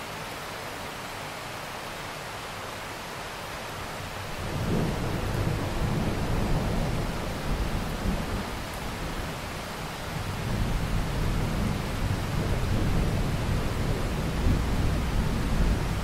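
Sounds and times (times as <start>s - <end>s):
steady rain hiss: 0.0s - 16.0s.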